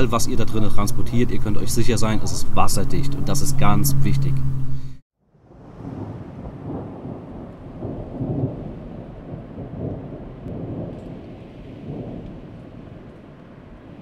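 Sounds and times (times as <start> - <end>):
low rolling rumble like thunder: 5.3 - 14.0
light rain-like hiss: 5.4 - 14.0.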